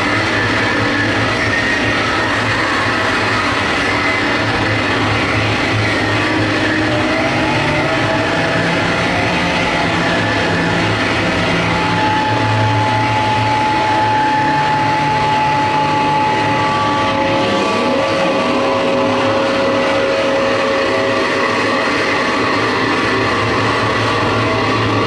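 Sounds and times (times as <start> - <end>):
harsh electronic noise music: 0.0 - 25.0
low hum: 0.0 - 25.0
lower held tone: 0.0 - 25.0
held high tone: 6.0 - 21.8.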